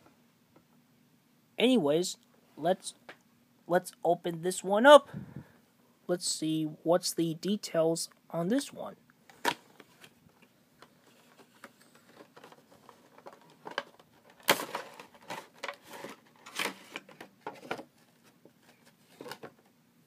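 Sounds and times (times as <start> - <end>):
cardboard and plastic rustling: 9.3 - 19.7.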